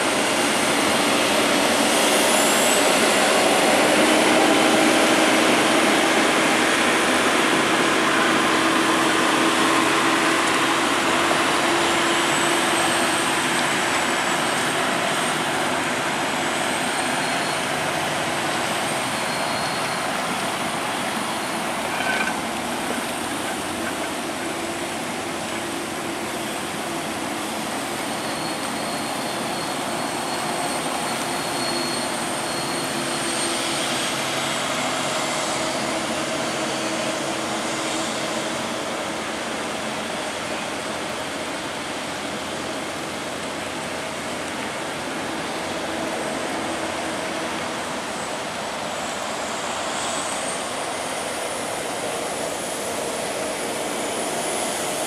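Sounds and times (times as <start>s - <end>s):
heavy truck engine under load: 3.0s - 31.8s.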